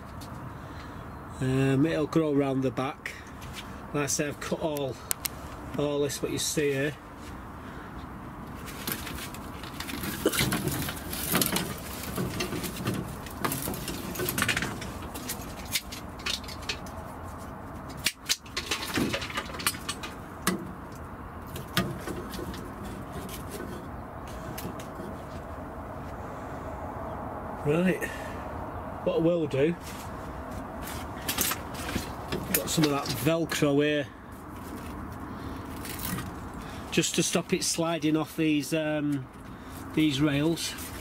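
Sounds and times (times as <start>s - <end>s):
branches rustling and clicking: 8.5s - 25.7s, 29.9s - 33.7s, 34.4s - 38.0s.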